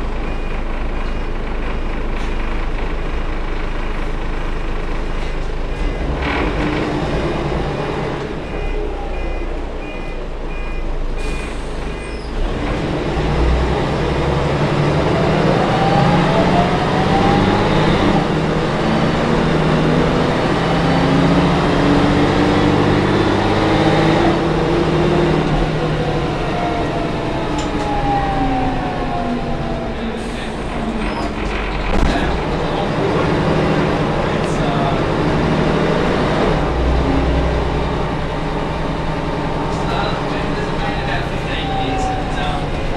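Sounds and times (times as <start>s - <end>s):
bus diesel engine: 0.0s - 42.9s
high beep: 8.4s - 12.2s.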